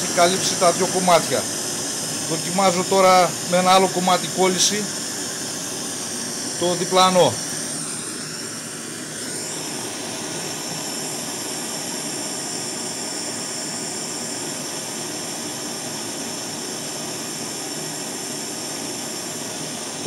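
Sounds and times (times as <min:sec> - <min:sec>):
hand torch hissing: 0:00.0 - 0:08.0.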